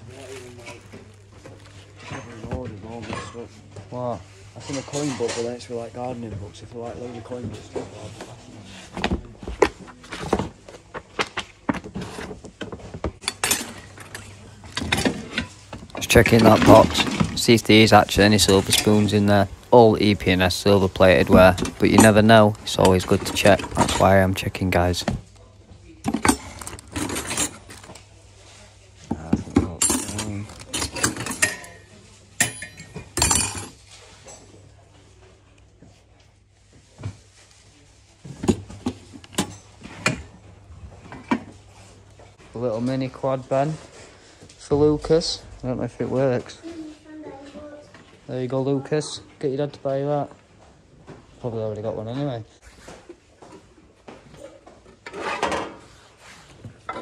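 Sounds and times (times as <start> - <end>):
cutlery clatter: 4.6 - 5.6, 13.2 - 19.2, 21.2 - 24.5, 26.1 - 28.0, 29.4 - 34.5, 38.4 - 40.3
cutlery clinking and rattling: 13.2 - 19.3, 26.1 - 28.0, 29.6 - 34.5
books shifted in plastic tub: 14.8 - 25.2
cutlery clinking in box: 26.1 - 28.0.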